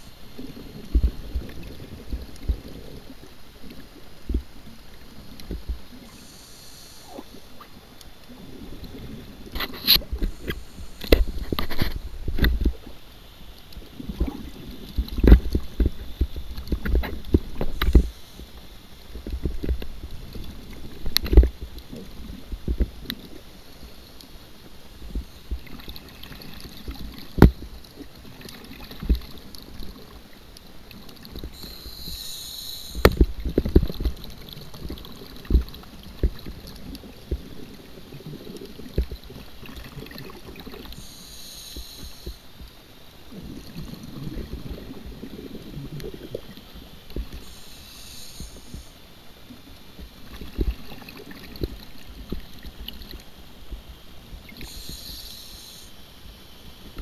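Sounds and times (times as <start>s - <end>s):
diver breathing hisses: 6.1s - 7.5s, 31.5s - 33.1s, 40.9s - 42.5s, 47.4s - 49.0s, 54.6s - 56.1s.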